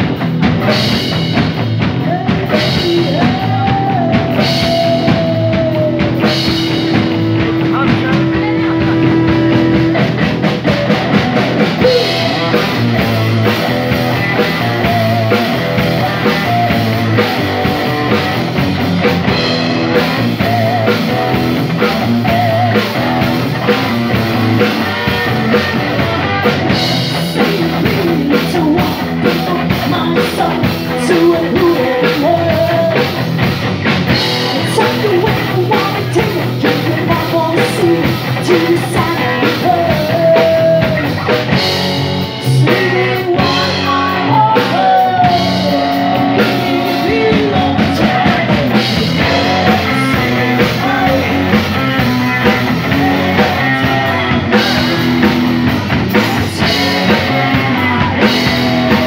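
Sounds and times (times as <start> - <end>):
bass guitar: 0.0 - 59.0
drum kit: 0.0 - 59.0
electric guitars: 0.0 - 59.0
woman singing: 2.0 - 9.8, 20.0 - 23.2, 27.1 - 33.3, 34.4 - 41.5, 42.4 - 55.3, 56.1 - 59.0.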